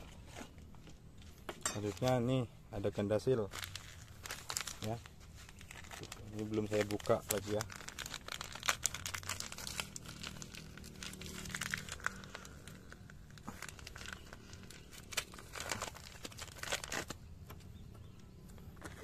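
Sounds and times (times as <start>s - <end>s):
plastic sachet crackling and tearing: 3.4s - 17.2s.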